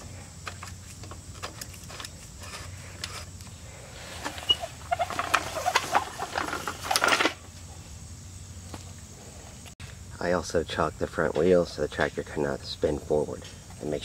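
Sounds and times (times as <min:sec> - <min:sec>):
floor jack rattling and squeaking: 0:04.2 - 0:07.4.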